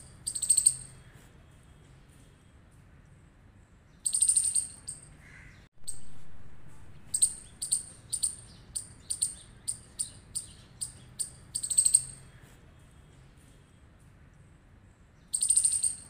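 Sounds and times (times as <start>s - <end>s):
rodent alarm chirps: 0.0s - 1.0s, 4.0s - 5.1s, 7.1s - 12.3s, 15.3s - 16.0s.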